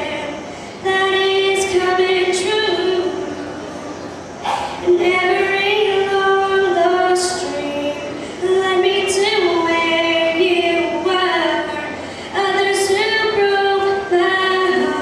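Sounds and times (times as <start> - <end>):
girl singing country ballad: 0.0 - 3.7, 4.7 - 15.0.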